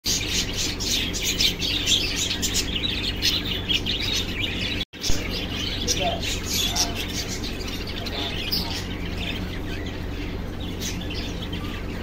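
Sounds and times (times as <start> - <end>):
cockatiels chirping: 0.1 - 12.0
steady low hum: 0.1 - 12.0.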